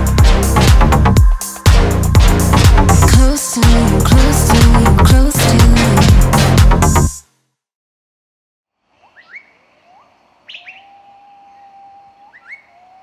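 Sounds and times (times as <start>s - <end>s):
music: 0.0s - 7.6s
bird-like chirps: 9.0s - 13.0s.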